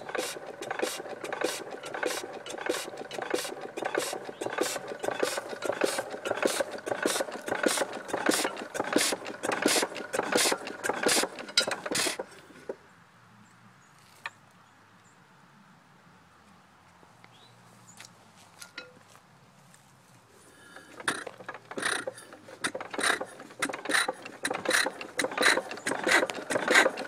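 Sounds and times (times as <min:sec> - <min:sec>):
mechanical clatter: 0:00.0 - 0:12.3, 0:20.8 - 0:27.0
gas engine beating: 0:00.0 - 0:12.7, 0:20.6 - 0:27.0.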